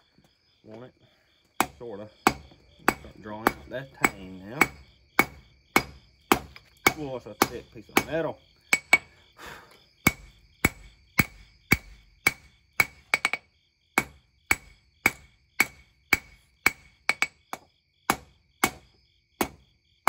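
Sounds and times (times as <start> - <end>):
hammer striking steel on anvil: 1.6 - 9.1, 10.1 - 13.4, 14.0 - 18.8.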